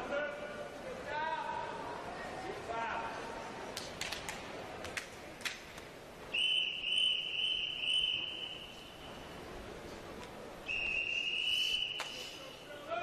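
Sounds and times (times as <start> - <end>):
referee's whistle blast: 10.7 - 12.3.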